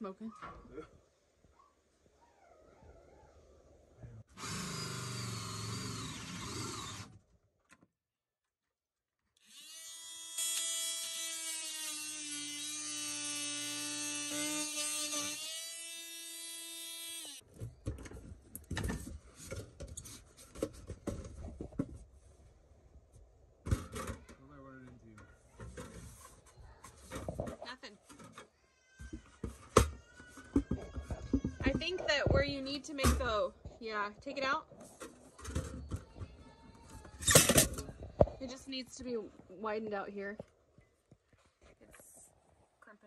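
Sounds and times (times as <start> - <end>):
cordless drill whining: 4.4 - 7.2.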